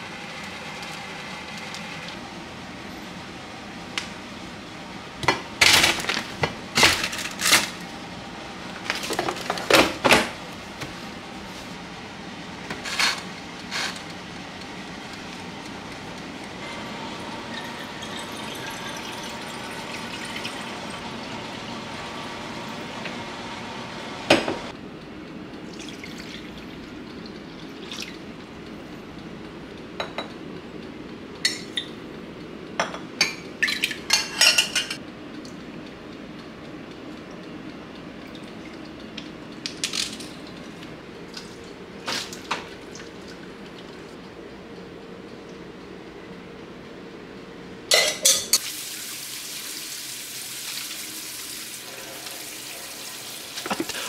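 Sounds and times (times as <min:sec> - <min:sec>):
tap running water into jug: 0:50.6 - 0:54.0.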